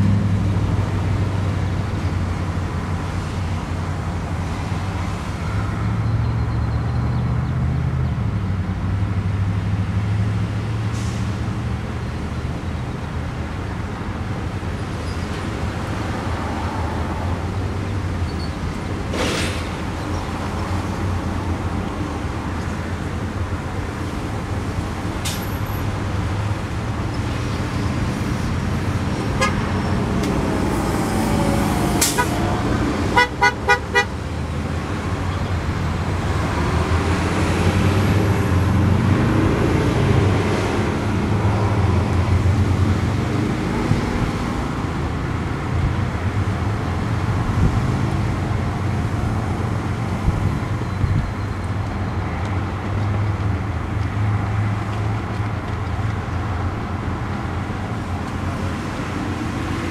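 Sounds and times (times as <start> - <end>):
vehicles passing: 0.0 - 59.9
car horn toots: 29.4 - 29.6, 33.2 - 34.1.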